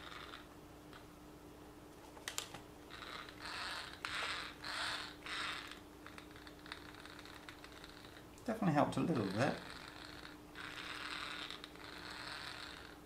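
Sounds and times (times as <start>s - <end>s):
toy car gears whirring: 0.0s - 0.4s, 2.9s - 8.2s, 9.1s - 13.0s.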